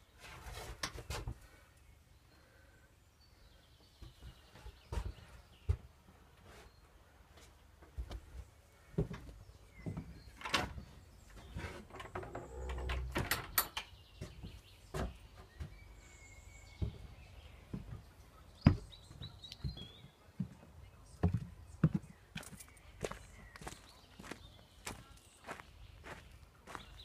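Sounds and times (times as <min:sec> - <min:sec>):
faint birdsong: 0:00.0 - 0:27.0
footsteps on wooden boards: 0:04.0 - 0:06.7, 0:07.3 - 0:12.6, 0:14.2 - 0:16.1, 0:16.7 - 0:27.0.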